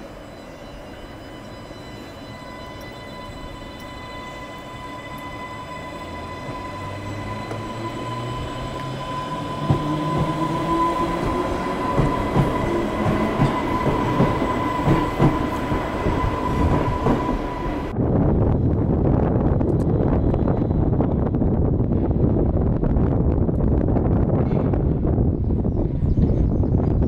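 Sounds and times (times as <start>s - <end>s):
electric train motor whine: 0.0s - 17.9s
train wheels clicking over rail joints: 6.4s - 17.4s.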